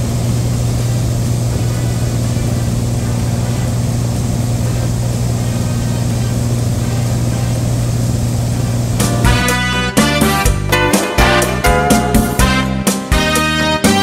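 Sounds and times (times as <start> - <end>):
light airplane engine droning: 0.0 - 9.1
music: 9.0 - 14.0.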